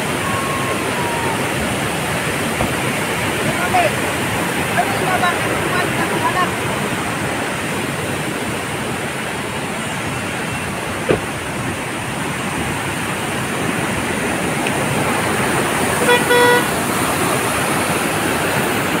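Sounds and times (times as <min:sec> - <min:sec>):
waterfall rushing: 0:00.0 - 0:19.0
car horn toot: 0:16.0 - 0:16.7.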